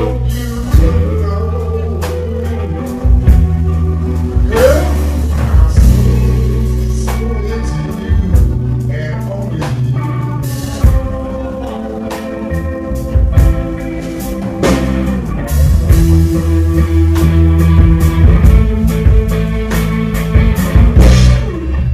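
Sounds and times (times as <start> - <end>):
electric bass low notes: 0.0 - 21.9
drum kit hits: 12.4 - 21.9.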